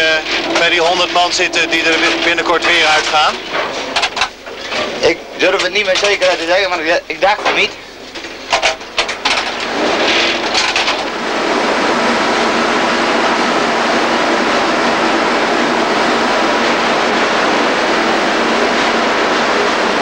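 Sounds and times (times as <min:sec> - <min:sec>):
faint hum: 0:00.0 - 0:08.5
machinery clattering knocks: 0:00.0 - 0:11.2
machinery running noise: 0:00.0 - 0:20.0.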